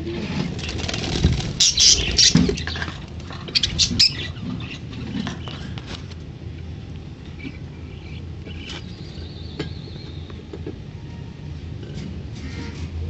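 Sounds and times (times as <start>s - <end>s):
harsh bird chirps: 1.5s - 2.9s, 3.5s - 5.7s.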